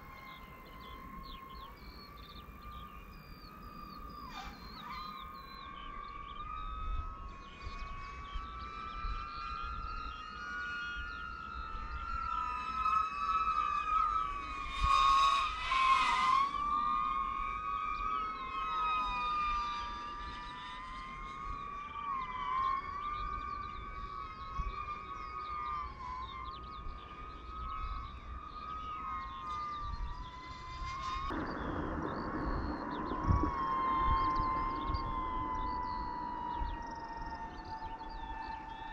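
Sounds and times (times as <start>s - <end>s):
drone propellers whining: 0.0s - 38.9s
rushing noise: 31.3s - 37.3s.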